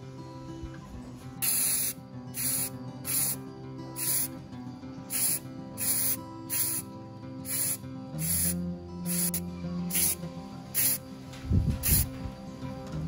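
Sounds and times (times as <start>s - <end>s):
background music: 0.0s - 13.0s
spray paint hissing: 1.4s - 3.4s, 4.0s - 4.4s, 5.1s - 11.0s, 11.8s - 12.1s.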